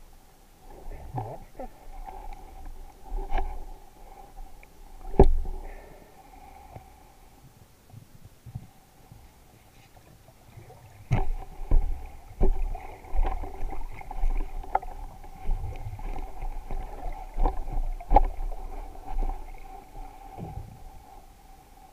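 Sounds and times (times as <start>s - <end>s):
faint steady whine: 0.0s - 21.9s
underwater thuds and knocks: 5.0s - 5.6s, 11.0s - 20.9s.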